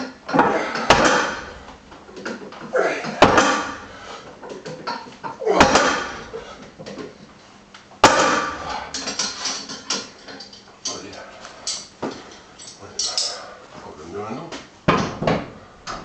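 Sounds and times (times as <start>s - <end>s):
weight plates thudding on floor mat: 0.0s - 4.0s, 4.6s - 7.1s, 8.0s - 9.4s
plates clanking together: 8.0s - 13.4s.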